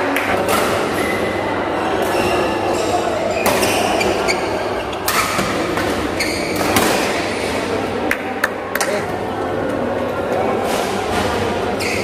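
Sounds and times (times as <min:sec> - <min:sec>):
background chatter in hall: 0:00.0 - 0:12.0
racket hitting shuttlecock: 0:05.0 - 0:07.2.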